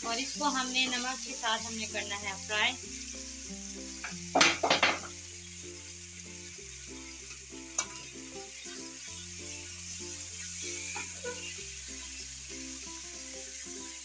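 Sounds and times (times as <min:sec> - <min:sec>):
chicken sizzling in hot oil: 0:00.0 - 0:14.0
spatula scraping and knocking pan: 0:04.0 - 0:05.2.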